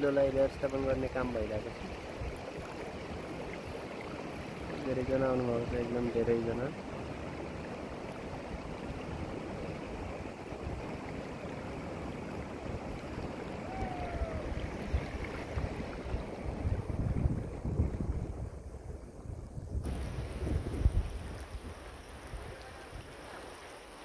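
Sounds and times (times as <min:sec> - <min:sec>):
river rushing over rocks: 0:06.8 - 0:17.0
wind buffeting microphone: 0:07.3 - 0:23.2.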